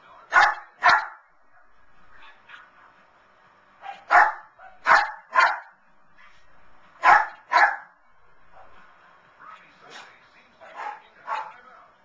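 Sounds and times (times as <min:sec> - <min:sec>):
dog barking: 0:00.3 - 0:02.7, 0:03.8 - 0:05.7, 0:07.0 - 0:08.9, 0:09.9 - 0:11.6.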